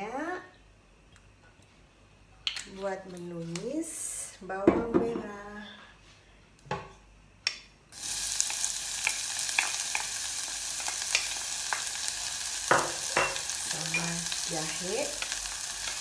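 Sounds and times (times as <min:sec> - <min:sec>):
shallots sizzling in hot oil: 0:07.9 - 0:16.0.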